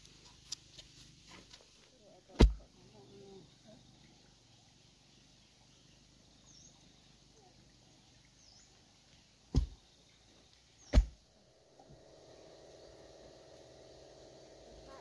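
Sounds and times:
wooden post thudding into soil: 2.4 - 2.7, 9.5 - 9.8, 10.9 - 11.2
faint bird chirps: 2.8 - 11.0.

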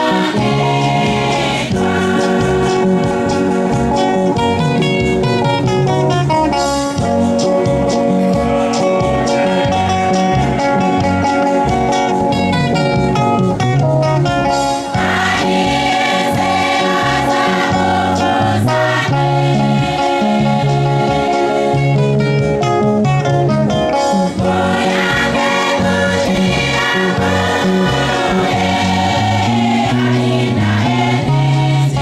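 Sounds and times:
choir singing in harmony: 0.0 - 4.6, 7.3 - 11.0, 14.7 - 22.0, 24.3 - 32.0
electric guitar: 0.0 - 32.0.

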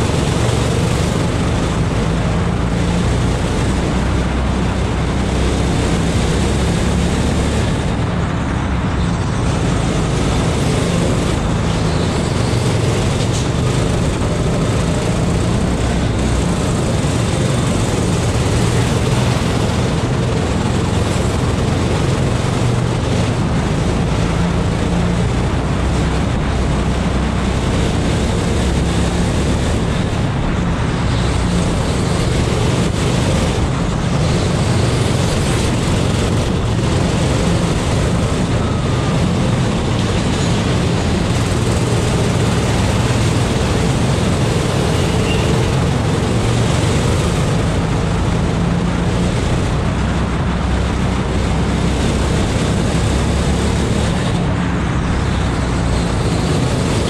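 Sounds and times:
go-kart engine racing: 0.0 - 57.0
steady rush of noise: 0.0 - 57.0.

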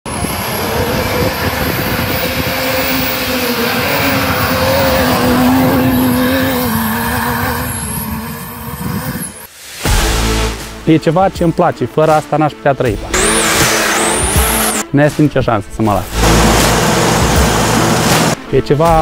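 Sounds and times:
buggy engine running under load: 0.0 - 9.5, 16.1 - 18.4.

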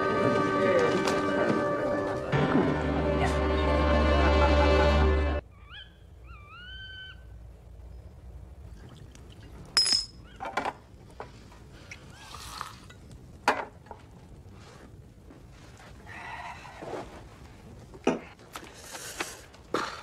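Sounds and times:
glass clinking: 9.8 - 10.2.

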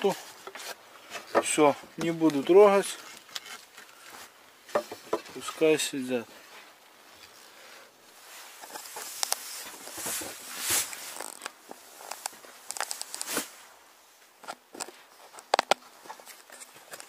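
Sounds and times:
heavy cloth rustling: 6.4 - 14.2.

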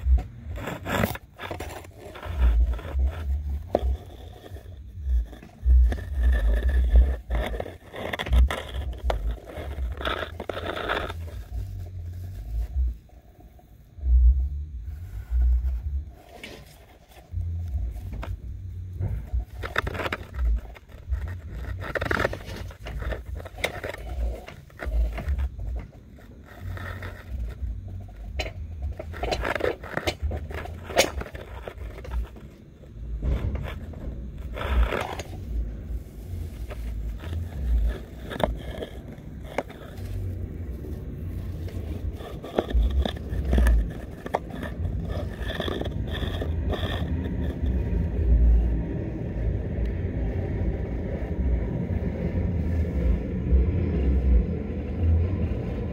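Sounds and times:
camera scraping flue wall: 0.0 - 13.6, 14.8 - 51.0
low thuds: 17.3 - 19.6, 32.9 - 37.7.

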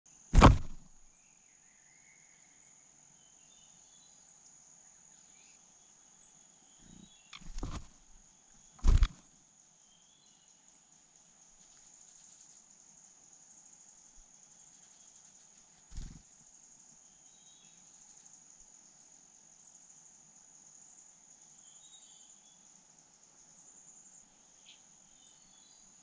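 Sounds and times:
loud sudden thumps: 0.3 - 1.0, 8.8 - 9.2
high insect trill: 2.6 - 26.0.

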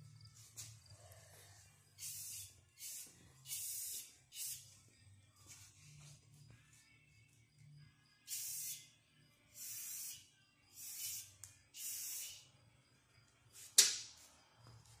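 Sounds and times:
spray-paint can hissing: 2.0 - 4.7, 8.3 - 8.9, 9.5 - 12.5.

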